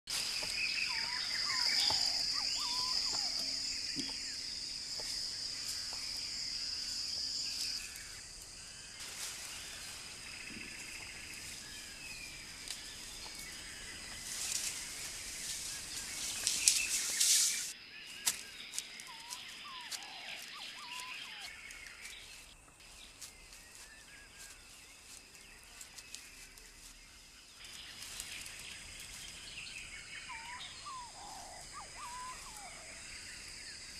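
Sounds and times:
bird-like chirps and ticks: 0:00.2 - 0:08.6, 0:09.8 - 0:33.0
rustling noise: 0:08.8 - 0:20.5.

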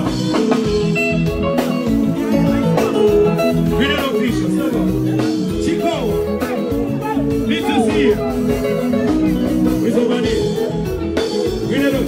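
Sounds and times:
loud dance music: 0:04.5 - 0:10.4.

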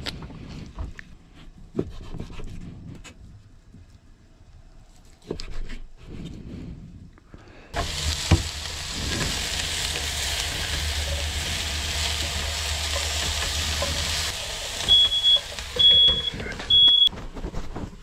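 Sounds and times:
stir fry sizzling in pan: 0:07.8 - 0:17.0
smoke alarm beeps: 0:14.8 - 0:17.1.

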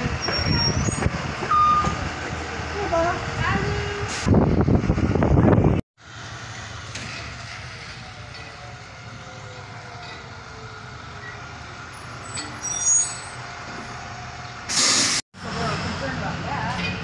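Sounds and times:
bus engine idling: 0:00.0 - 0:17.0
high-pitched squeal: 0:11.1 - 0:14.0.

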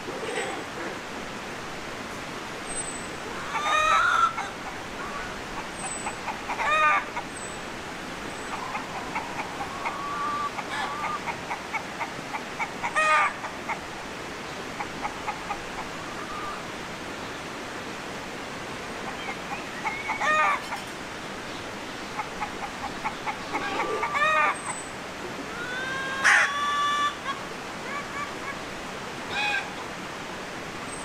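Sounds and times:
chickens clucking softly: 0:00.0 - 0:01.0, 0:03.3 - 0:07.5, 0:08.3 - 0:13.9, 0:14.5 - 0:16.6, 0:19.0 - 0:28.6
background hiss: 0:00.0 - 0:31.0
chicken calls: 0:03.3 - 0:07.4, 0:08.3 - 0:13.9, 0:19.1 - 0:21.0, 0:22.1 - 0:24.8, 0:25.4 - 0:28.6, 0:29.3 - 0:29.9.

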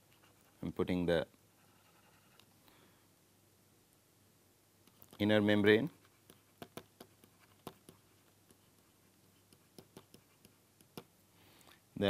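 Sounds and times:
stylus tapping tablet screen: 0:06.1 - 0:11.2.

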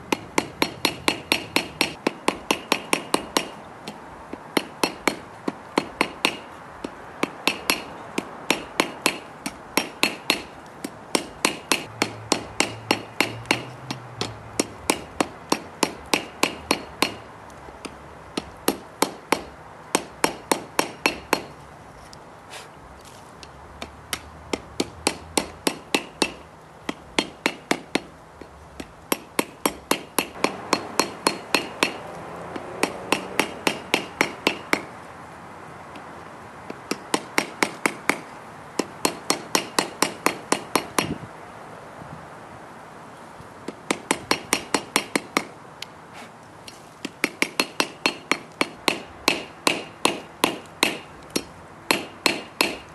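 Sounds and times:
hammer striking metal on anvil: 0:07.4 - 0:17.2, 0:29.1 - 0:32.1, 0:32.8 - 0:34.9, 0:47.2 - 0:52.9.

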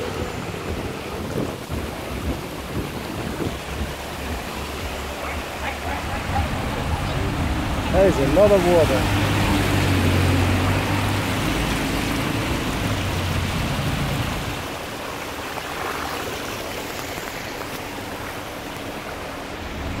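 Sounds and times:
low engine hum: 0:00.0 - 0:14.9, 0:15.8 - 0:20.0
water rushing across road: 0:00.0 - 0:20.0.

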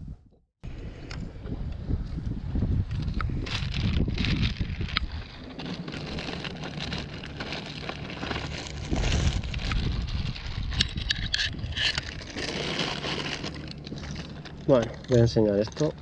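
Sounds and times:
wind buffeting microphone: 0:00.0 - 0:16.0
plastic bag crinkling: 0:03.5 - 0:15.9.

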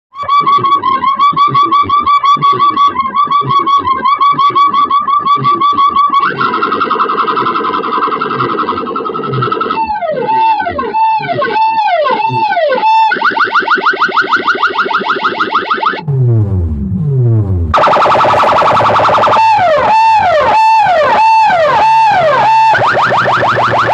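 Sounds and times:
electronic beat music: 0:00.2 - 0:23.9
deep falling bass sweeps: 0:16.0 - 0:23.9.

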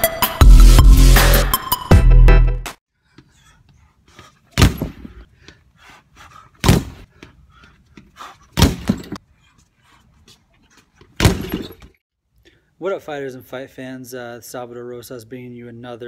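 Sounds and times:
electronic music: 0:00.0 - 0:02.8
punches on punching bag: 0:04.6 - 0:05.1, 0:06.6 - 0:07.0.

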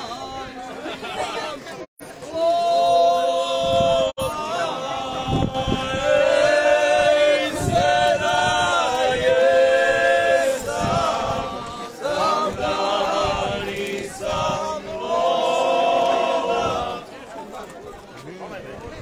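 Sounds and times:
men singing unaccompanied: 0:02.4 - 0:17.0.

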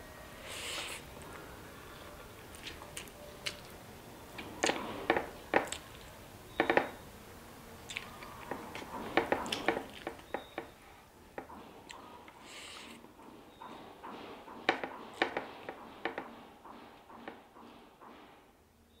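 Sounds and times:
chewing and smacking: 0:02.4 - 0:03.8, 0:04.4 - 0:06.1, 0:07.8 - 0:10.5
fingers working food on a plate: 0:07.9 - 0:10.8.

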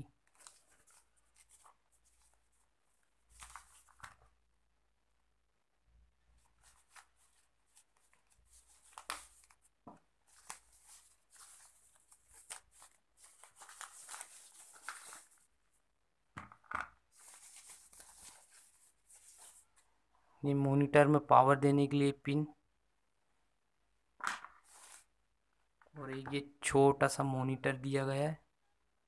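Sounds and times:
wrapping sheet rustling and crinkling: 0:00.1 - 0:04.4, 0:06.4 - 0:15.6, 0:17.0 - 0:19.9, 0:24.5 - 0:25.2.

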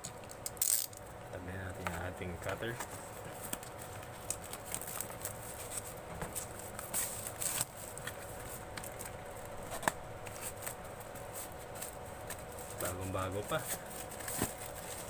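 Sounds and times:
plastic shrink-wrap crinkling: 0:03.2 - 0:15.0.

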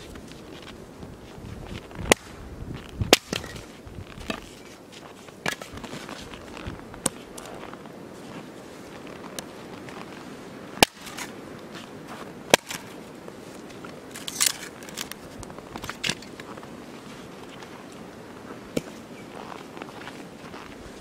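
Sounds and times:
hatchet chopping firewood: 0:02.0 - 0:02.3, 0:02.9 - 0:04.6, 0:05.4 - 0:06.0, 0:10.8 - 0:11.4, 0:12.5 - 0:13.0, 0:14.1 - 0:15.2, 0:18.7 - 0:19.0.

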